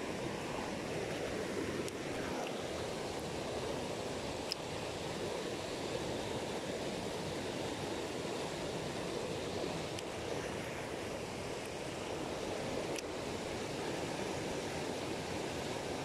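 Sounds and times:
river rushing over rapids: 0.0 - 16.0.

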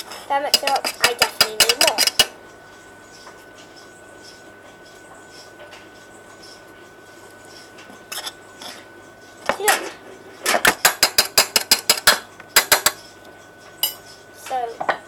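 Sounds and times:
spoon clinking against metal saucepan: 0.5 - 2.3.

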